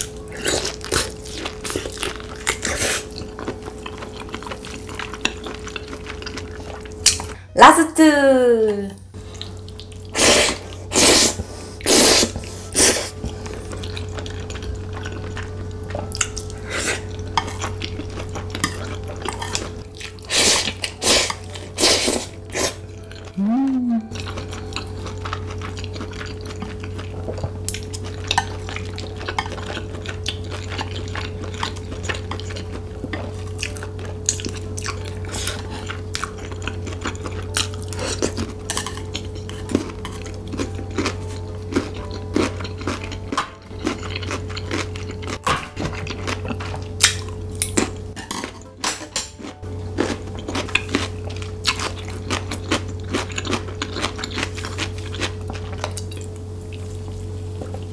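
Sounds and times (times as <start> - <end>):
low hum: 21.3 - 53.1.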